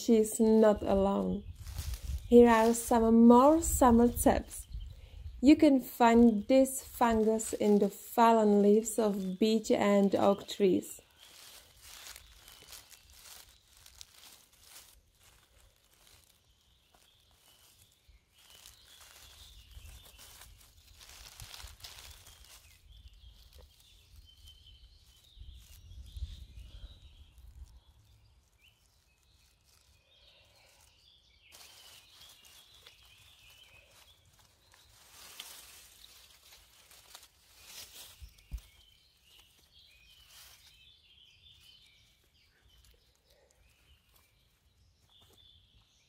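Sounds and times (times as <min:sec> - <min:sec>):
dry leaves rustling: 0:00.0 - 0:46.0
faint high chirping: 0:10.1 - 0:45.9.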